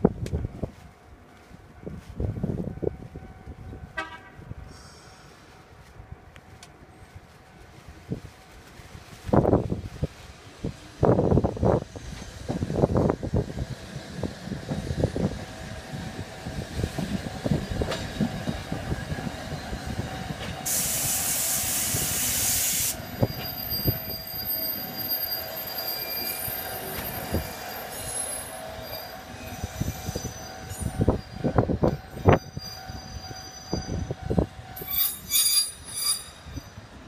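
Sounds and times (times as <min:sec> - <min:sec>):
tram wheel squeal: 0:12.0 - 0:37.0
loud air hiss: 0:20.6 - 0:23.0.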